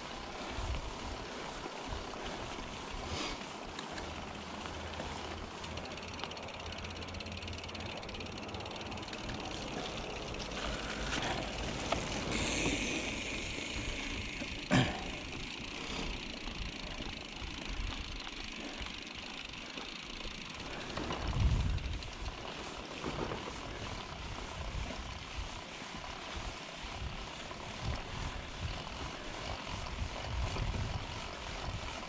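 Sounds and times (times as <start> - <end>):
bike rattling: 0.0 - 32.0
bike tyres rolling on dirt: 0.0 - 32.0
wind on microphone: 21.2 - 22.0, 29.7 - 32.0.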